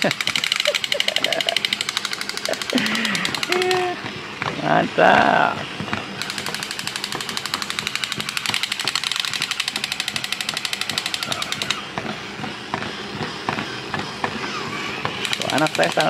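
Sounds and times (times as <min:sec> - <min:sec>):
crawling toys clicking: 0:00.0 - 0:03.9, 0:06.2 - 0:11.8, 0:15.1 - 0:16.0
toy machine-gun sound effect: 0:00.0 - 0:04.0, 0:06.2 - 0:11.9, 0:14.3 - 0:16.0.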